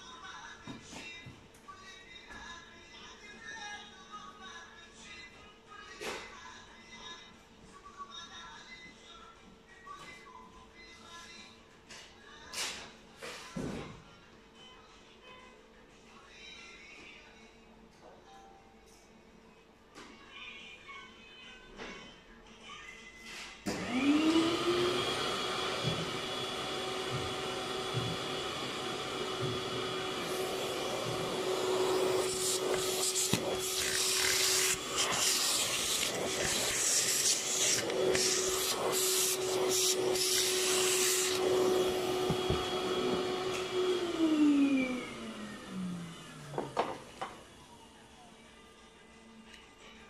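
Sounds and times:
vacuum cleaner running: 23.7s - 48.3s.

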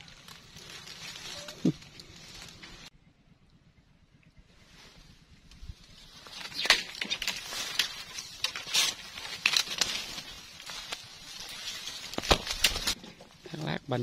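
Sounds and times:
dry leaves crackling and rustling: 0.0s - 2.9s, 5.7s - 14.0s
sharp snaps of stems: 6.2s - 13.0s.

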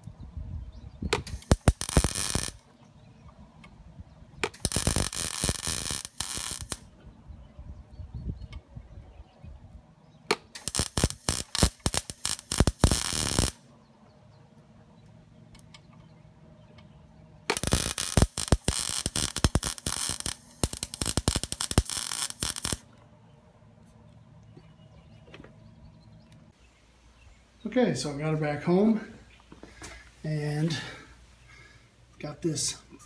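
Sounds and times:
arc welder crackling: 1.1s - 2.7s, 4.4s - 7.0s, 10.3s - 13.7s, 17.4s - 23.0s.

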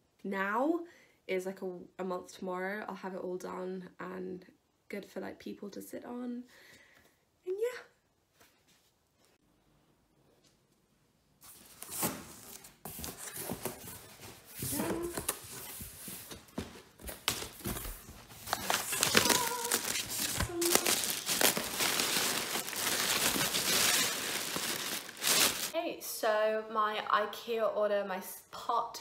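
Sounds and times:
packing paper crumpling: 17.1s - 25.8s.

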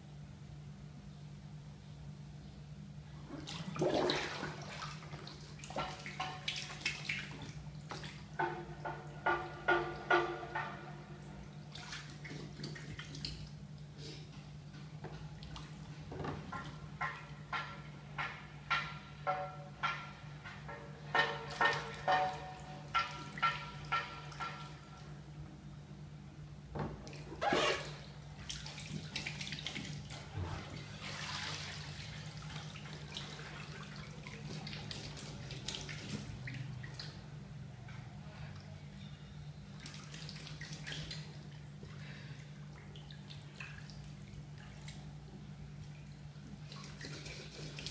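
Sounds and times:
bath water splashing: 3.2s - 13.6s, 27.0s - 37.2s, 39.8s - 47.9s
water dripping: 3.3s - 13.9s, 14.7s - 25.3s, 31.0s - 47.9s.

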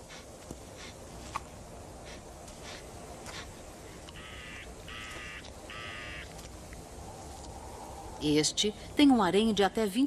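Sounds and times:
harsh animal calls: 4.1s - 6.3s.

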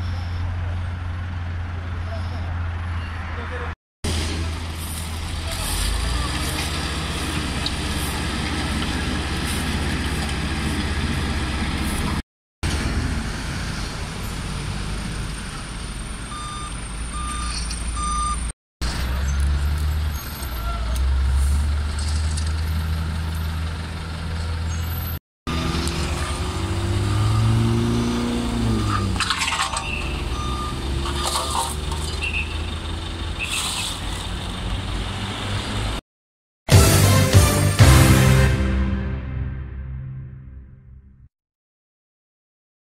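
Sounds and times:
highway traffic rumble: 0.0s - 36.0s
short beeps: 16.3s - 18.5s.

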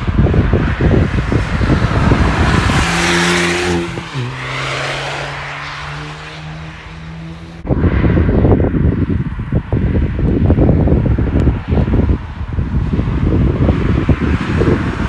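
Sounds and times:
car engine passing at speed: 0.0s - 15.0s
wind buffeting microphone: 0.0s - 15.0s.

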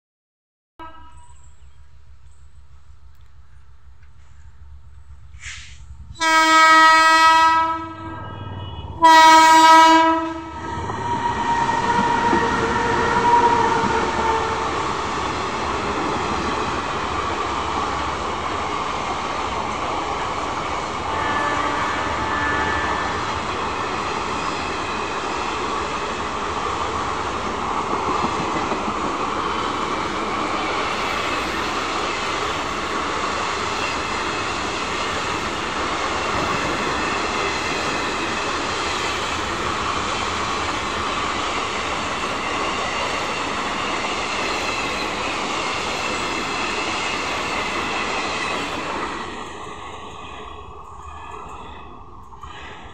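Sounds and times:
locomotive horn blast: 0.8s - 1.4s, 6.2s - 14.8s, 21.1s - 23.4s
train wheels rumbling on rails: 1.8s - 52.9s.

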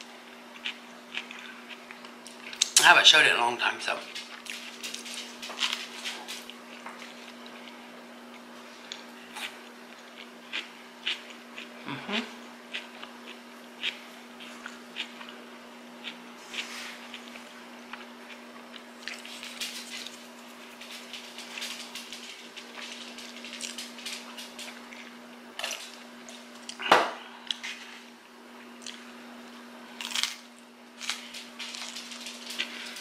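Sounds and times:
chewing: 0.3s - 2.8s, 4.1s - 11.7s, 12.7s - 15.4s, 16.0s - 26.8s, 31.0s - 33.0s.

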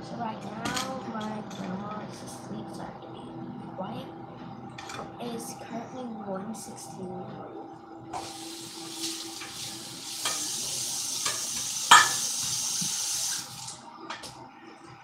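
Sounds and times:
tap running into sink: 11.2s - 13.5s.

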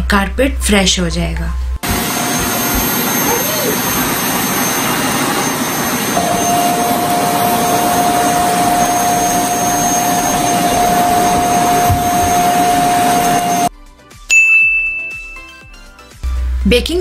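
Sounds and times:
steady whine: 1.8s - 13.7s
vacuum cleaner running on carpet: 1.8s - 13.7s.

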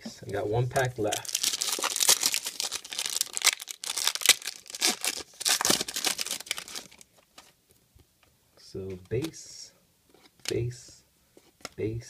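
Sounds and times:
foil wrapper crinkling and tearing: 1.1s - 7.0s.

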